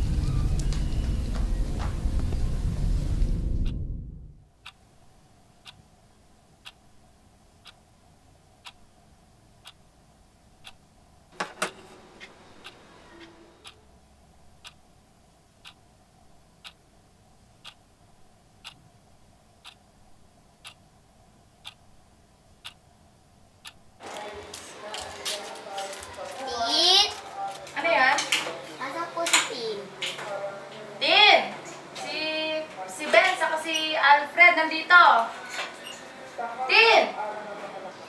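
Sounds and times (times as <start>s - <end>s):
low room hum: 0.0s - 36.6s
clock ticking: 3.6s - 4.9s, 5.6s - 5.9s, 6.6s - 6.9s, 7.5s - 7.8s, 8.6s - 9.0s, 9.6s - 9.8s, 10.6s - 10.9s, 12.6s - 13.8s, 14.5s - 15.0s, 15.6s - 15.8s, 16.5s - 16.8s, 17.5s - 17.9s, 18.5s - 18.9s, 19.6s - 19.9s, 20.5s - 20.9s, 21.6s - 22.0s, 22.6s - 22.8s, 23.6s - 24.0s.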